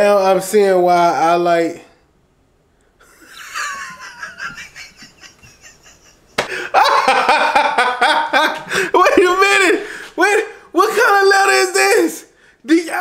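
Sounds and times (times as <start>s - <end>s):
man laughing: 3.0s - 9.8s.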